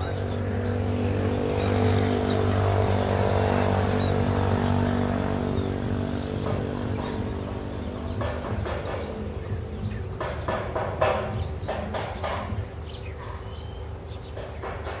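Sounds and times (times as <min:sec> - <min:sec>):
motor engine droning: 0:00.0 - 0:10.4.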